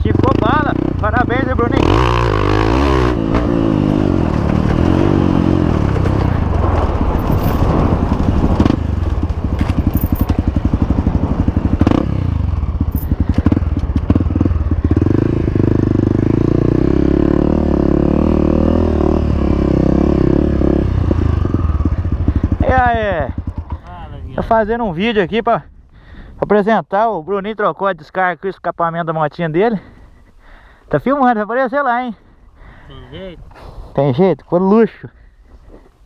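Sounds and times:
dirt bike engine revving: 0:00.0 - 0:23.8.

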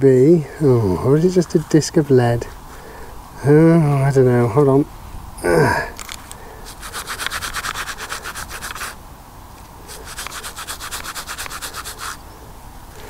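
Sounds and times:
stiff brush scrubbing metal: 0:06.6 - 0:09.0, 0:09.9 - 0:12.2.

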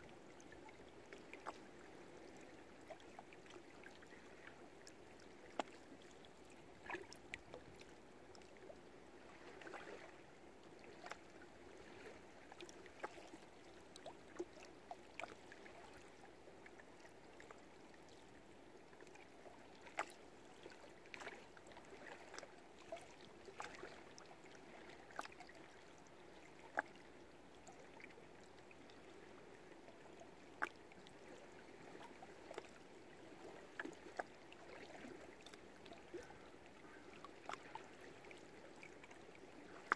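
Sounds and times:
water lapping against boats: 0:00.0 - 0:39.9.

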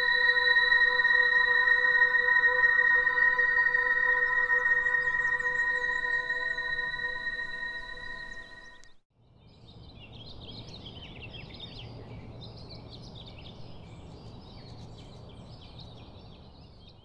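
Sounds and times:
small birds singing and chirping: 0:00.0 - 0:17.0.

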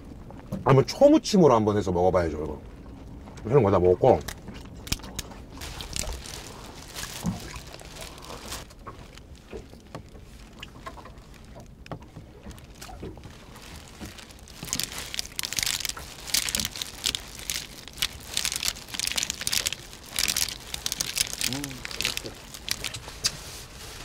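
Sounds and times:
wet food squelching: 0:04.4 - 0:11.8, 0:12.4 - 0:23.4
plastic glove crinkling: 0:04.7 - 0:24.0.

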